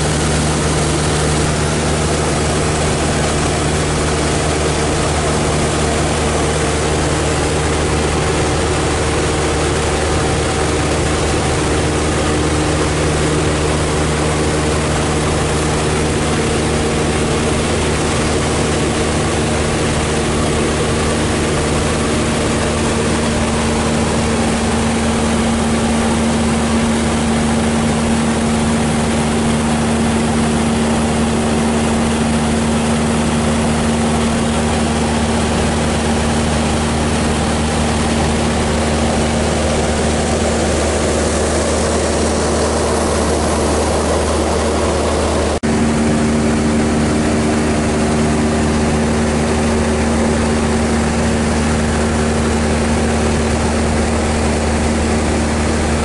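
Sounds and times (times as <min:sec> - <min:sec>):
propeller plane engine drone: 0:00.0 - 0:56.0.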